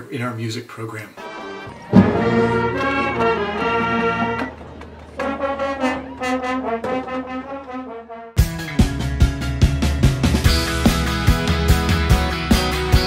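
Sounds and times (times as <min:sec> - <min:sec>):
wind band playing chords: 0:01.2 - 0:08.5
music with a beat: 0:08.4 - 0:13.0.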